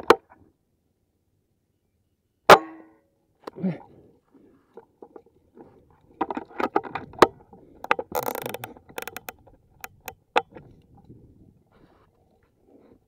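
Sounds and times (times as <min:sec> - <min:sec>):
air rifle handling clicks and knocks: 0:04.7 - 0:11.1.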